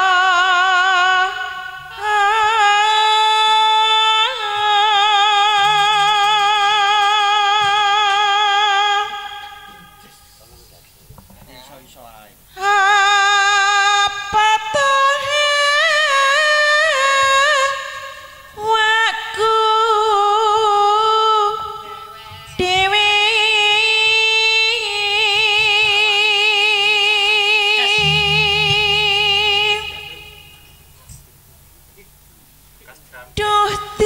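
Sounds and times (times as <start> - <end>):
high voice singing: 27.9 - 30.8.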